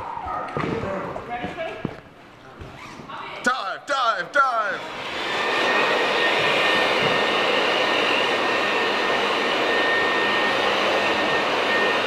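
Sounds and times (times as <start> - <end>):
electric air blower running: 4.8 - 12.0.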